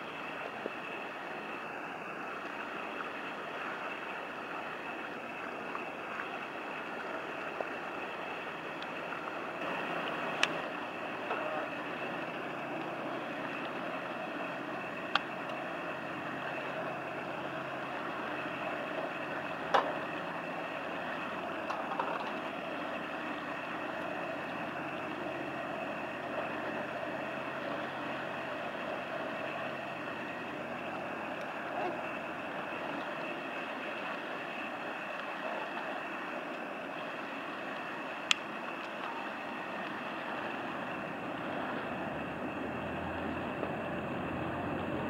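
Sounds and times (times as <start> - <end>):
boat engines droning: 0.0 - 45.0
faint high whine: 0.0 - 45.0.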